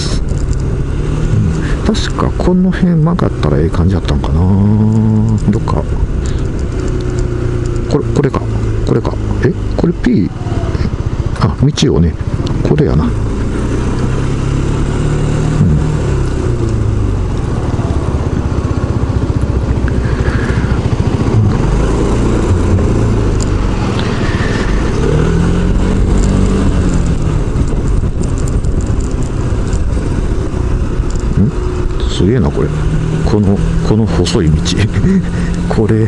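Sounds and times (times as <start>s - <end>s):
scooter engine revving: 0.0s - 36.0s
wind noise: 19.8s - 32.0s.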